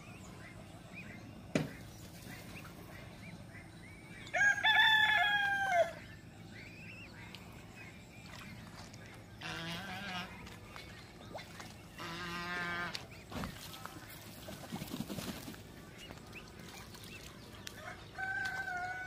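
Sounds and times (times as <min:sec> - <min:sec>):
ducklings and chicks peeping: 0:00.0 - 0:19.0
sharp knock: 0:01.5 - 0:01.8
rooster crowing: 0:04.3 - 0:06.0, 0:17.8 - 0:19.0.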